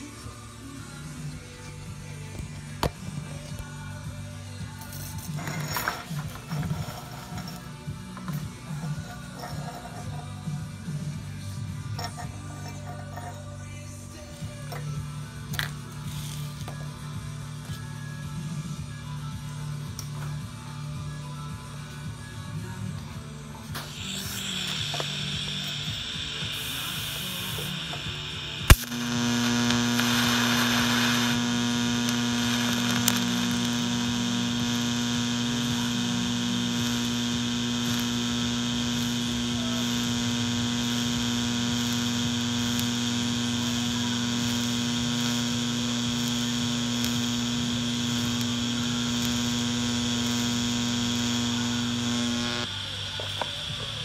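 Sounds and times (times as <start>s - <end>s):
welding arc buzzing hum: 0.0s - 54.0s
welding arc striking crack: 23.8s - 53.9s.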